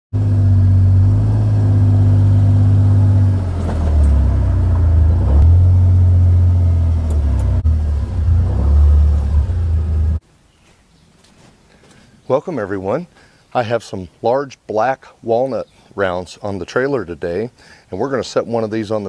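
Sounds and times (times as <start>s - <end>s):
utility vehicle engine droning: 0.1s - 10.2s.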